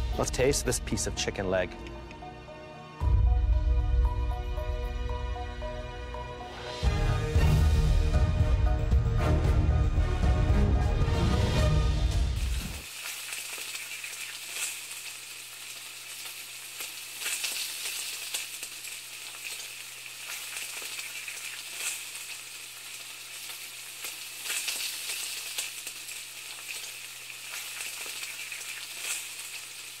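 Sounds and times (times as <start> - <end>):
food sizzling in hot oil: 12.2 - 30.0.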